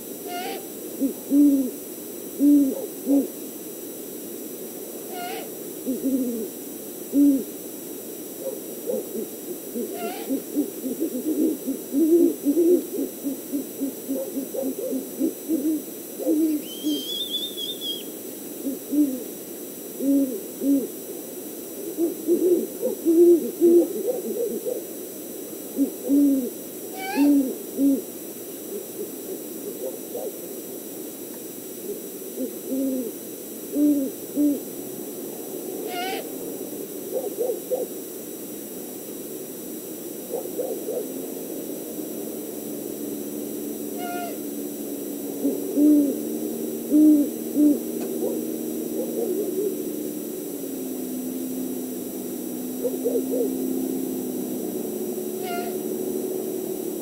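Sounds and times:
owls hooting: 0.2s - 1.8s, 2.4s - 3.4s, 5.1s - 7.5s, 8.4s - 19.3s, 20.0s - 21.0s, 21.8s - 24.9s, 25.7s - 28.1s, 28.7s - 30.4s, 32.4s - 34.7s, 35.8s - 36.5s, 37.1s - 38.0s, 40.3s - 41.2s, 44.0s - 44.6s, 45.4s - 49.8s, 52.7s - 53.7s, 55.3s - 55.9s
high whistle: 16.6s - 18.1s.

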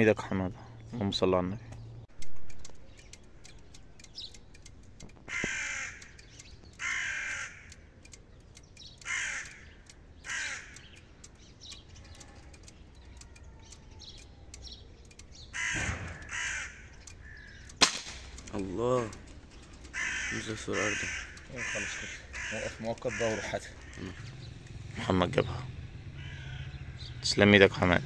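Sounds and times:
faint small-bird chirps: 2.5s - 4.8s, 6.1s - 6.9s, 8.0s - 10.0s, 10.7s - 15.6s
crow cawing: 5.2s - 8.0s, 9.0s - 11.0s, 15.5s - 17.7s, 19.8s - 24.9s, 25.7s - 27.2s.

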